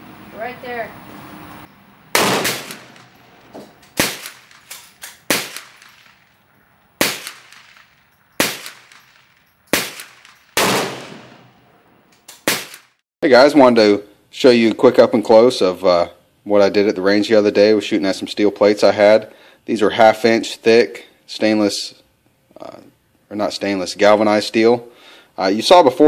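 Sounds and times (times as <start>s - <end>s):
rifle shots hitting steel: 2.1s - 13.0s.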